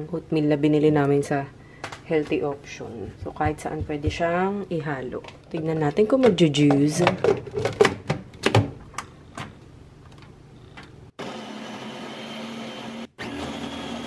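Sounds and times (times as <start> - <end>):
blender motor whirring: 11.2 - 14.0.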